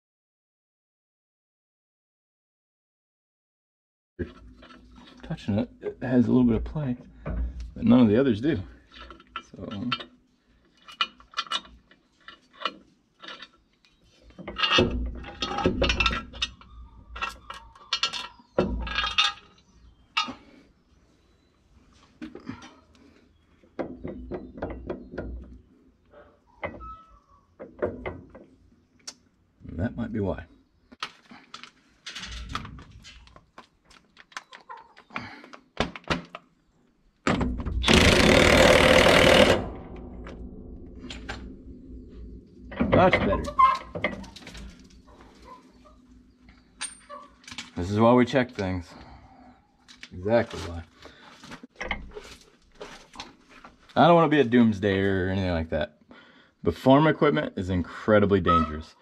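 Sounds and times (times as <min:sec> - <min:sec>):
metal bolts clinking: 0:08.8 - 0:10.2, 0:10.8 - 0:20.5, 0:31.5 - 0:33.3, 0:42.6 - 0:48.7
impact wrench hammering: 0:37.3 - 0:40.1.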